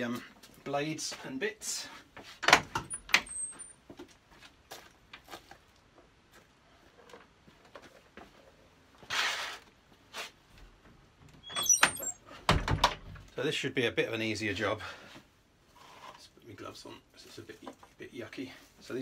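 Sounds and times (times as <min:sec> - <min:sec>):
high squeaks of door latch: 0:02.8 - 0:03.7, 0:11.4 - 0:12.2
short scraping noise: 0:09.1 - 0:10.3.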